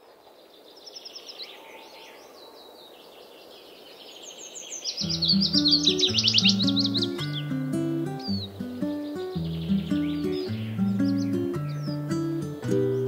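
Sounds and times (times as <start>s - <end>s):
soft outdoor hiss: 0.0s - 13.0s
songbirds chirping and singing: 0.2s - 13.0s
music with steady notes: 5.1s - 13.0s.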